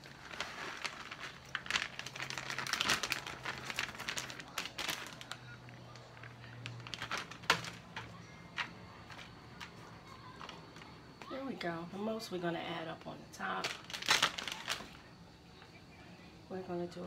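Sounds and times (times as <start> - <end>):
plastic bag crinkling: 0.0 - 10.9, 13.4 - 15.2.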